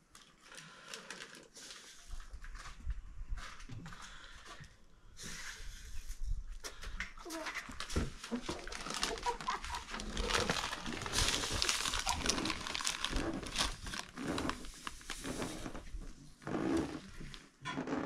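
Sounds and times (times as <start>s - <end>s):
plastic bag crinkling: 0.0s - 2.8s, 7.2s - 17.4s.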